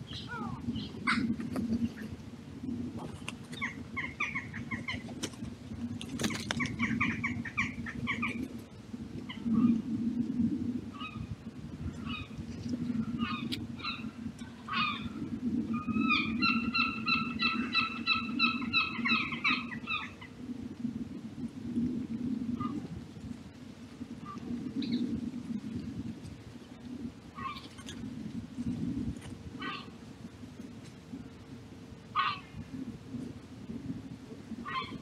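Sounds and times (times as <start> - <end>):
wild birds calling: 3.5 - 5.0, 6.5 - 8.4, 13.1 - 20.4, 27.4 - 27.9, 29.6 - 29.9, 32.1 - 32.6, 34.6 - 35.0.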